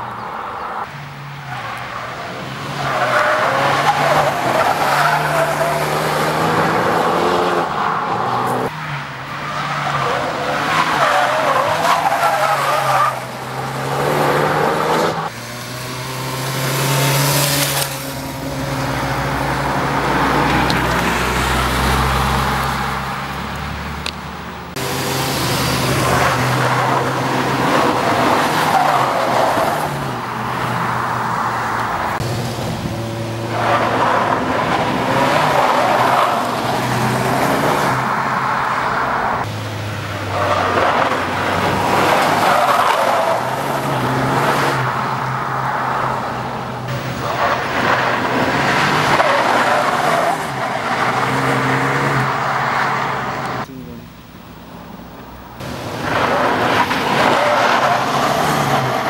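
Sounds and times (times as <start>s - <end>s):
car engine at high revs: 0.0s - 59.0s
tyres squealing: 1.2s - 15.4s.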